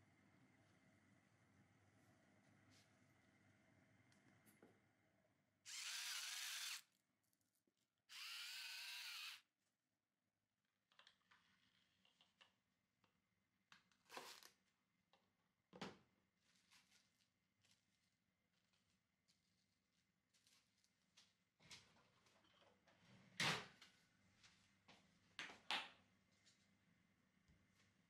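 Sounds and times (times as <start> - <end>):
electric grinder whirring: 5.7 - 6.8, 8.1 - 9.4.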